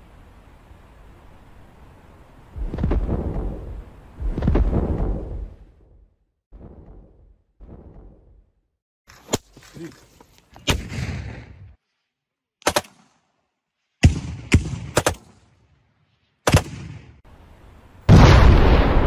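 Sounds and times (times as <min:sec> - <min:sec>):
launcher firing blast: 0:10.7 - 0:11.6, 0:18.1 - 0:19.0
rifle shots: 0:12.6 - 0:13.1, 0:14.0 - 0:15.4, 0:16.4 - 0:17.1.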